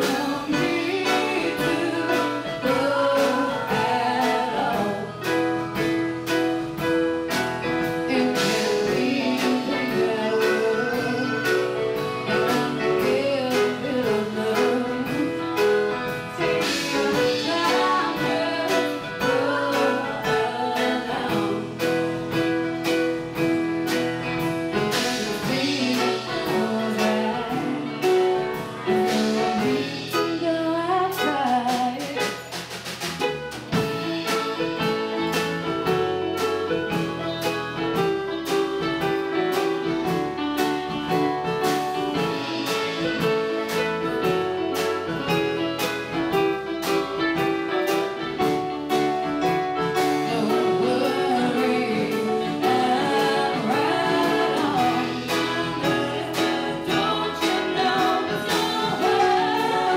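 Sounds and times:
woman singing: 0.0 - 5.6, 7.9 - 22.1, 24.7 - 32.5, 50.0 - 59.9
bass guitar: 0.0 - 59.9
drum kit beat: 0.0 - 59.9
keyboard: 0.0 - 59.9.

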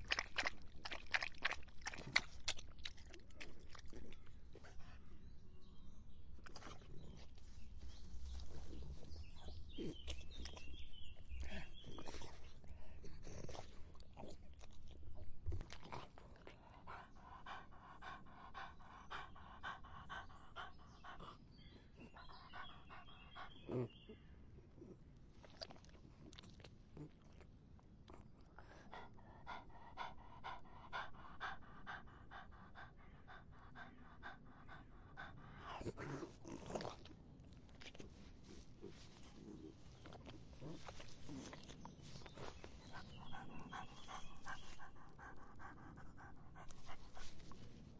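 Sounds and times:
dog lapping water: 0.0 - 4.0.

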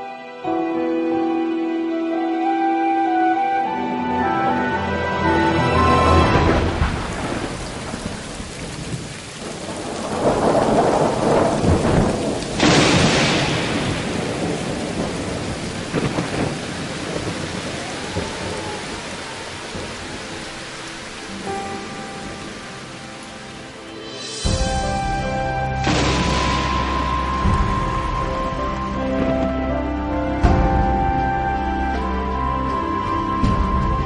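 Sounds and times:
heavy rain: 0.0 - 34.0
rolling thunder: 5.8 - 22.7, 24.4 - 34.0
sharp thunderclap: 6.2 - 18.6, 24.4 - 29.3.

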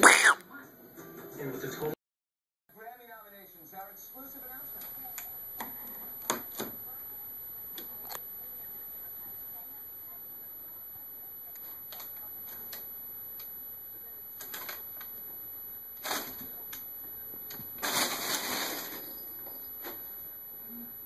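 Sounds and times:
paper crinkling and rustling: 14.4 - 15.2, 16.0 - 16.8, 17.4 - 20.0.

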